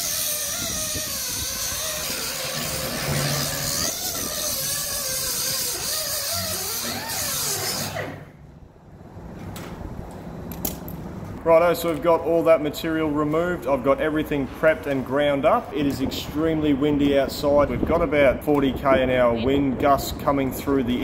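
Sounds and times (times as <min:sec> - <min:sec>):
angle grinder grinding steel: 0:00.0 - 0:08.2.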